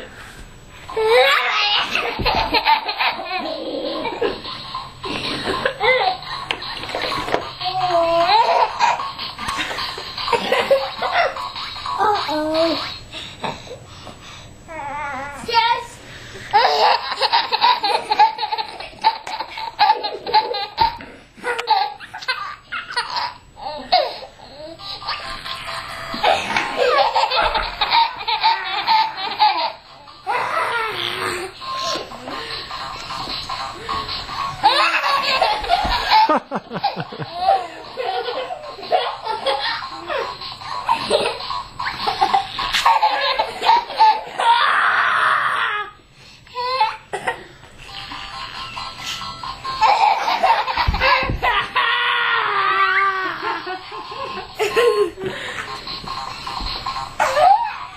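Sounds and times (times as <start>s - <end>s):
steady hissing noise: 0.0s - 1.1s, 1.7s - 30.3s, 30.9s - 44.4s
baby laughing: 1.0s - 13.0s, 16.5s - 32.5s, 34.4s - 45.0s, 49.8s - 57.9s.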